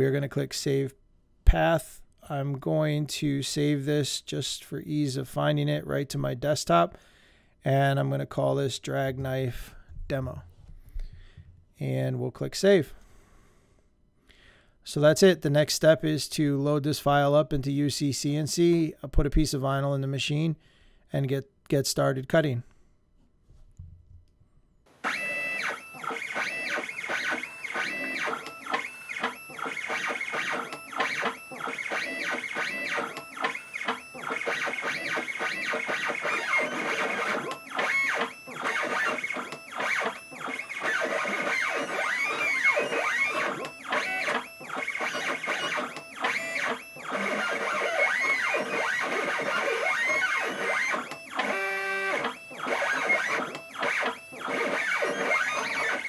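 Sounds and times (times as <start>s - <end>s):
stepper motors whining: 25.0s - 56.0s.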